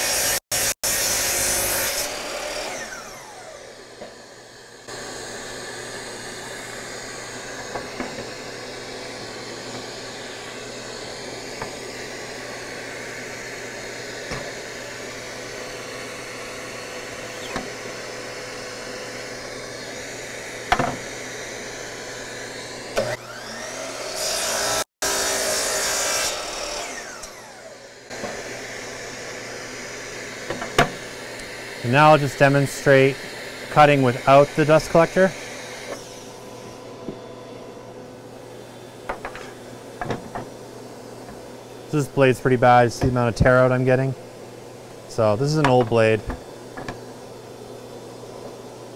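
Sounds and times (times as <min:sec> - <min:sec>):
saw blade winding down whine: 0:00.0 - 0:05.0, 0:15.9 - 0:30.4, 0:31.3 - 0:37.7
miter saw cutting wood: 0:00.0 - 0:37.8
shop vacuum running: 0:00.0 - 0:48.9.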